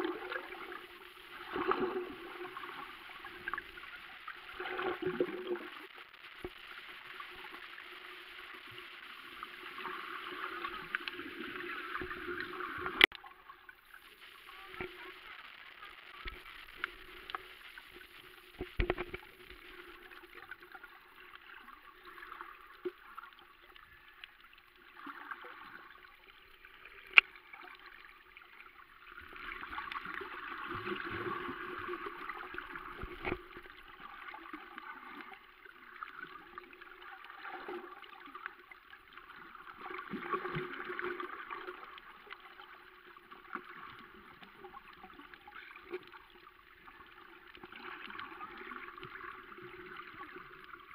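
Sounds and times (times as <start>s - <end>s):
underwater clicks and knocks: 18.6s - 19.3s, 32.9s - 33.6s.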